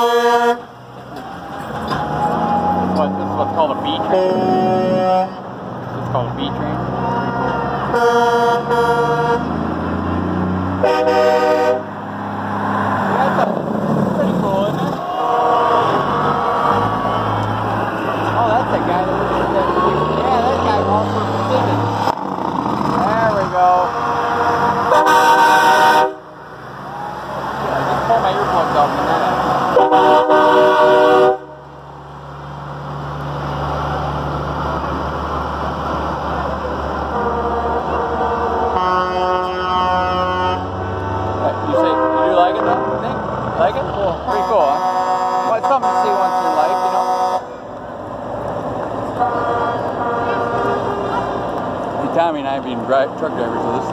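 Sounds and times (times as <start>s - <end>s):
truck air horn blasts: 0.0s - 0.8s, 3.8s - 5.5s, 6.9s - 9.6s, 10.8s - 12.0s, 23.7s - 26.4s, 28.4s - 31.6s, 37.0s - 41.0s, 41.6s - 43.2s, 44.2s - 47.7s, 49.2s - 51.4s
diesel engines rumbling: 0.0s - 53.9s.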